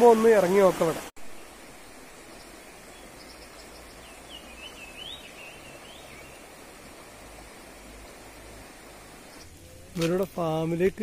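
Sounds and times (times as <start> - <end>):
stream running over rocks: 0.0 - 11.0
bird singing: 2.2 - 6.4.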